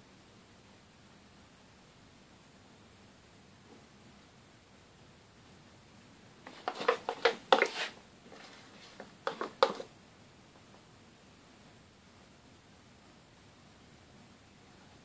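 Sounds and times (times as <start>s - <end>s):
spatula scraping a bowl: 6.5s - 9.9s.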